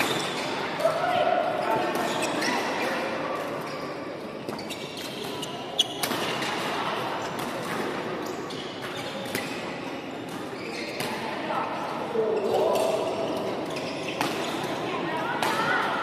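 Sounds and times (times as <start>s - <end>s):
shoe squeaks on wooden court: 0.0s - 0.7s, 1.6s - 6.7s, 7.7s - 11.2s, 12.3s - 14.8s
echoing background chatter: 0.0s - 16.0s.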